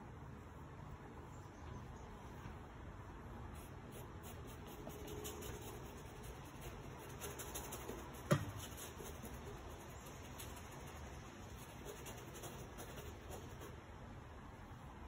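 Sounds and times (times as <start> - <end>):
paintbrush scrubbing on panel: 3.6 - 13.8.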